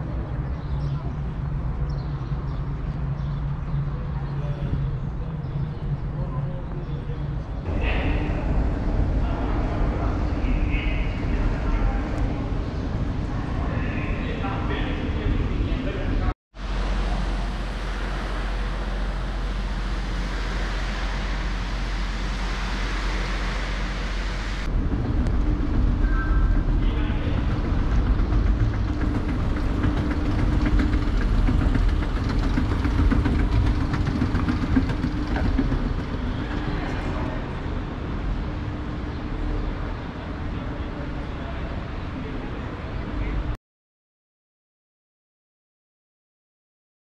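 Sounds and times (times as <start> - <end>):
escalator humming and rumbling: 0.0 - 43.6
steady hiss: 16.6 - 24.7.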